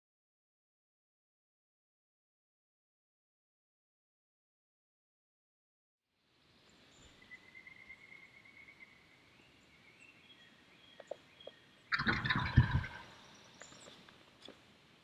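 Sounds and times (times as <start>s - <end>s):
faint rural outdoor ambience: 6.1s - 15.0s.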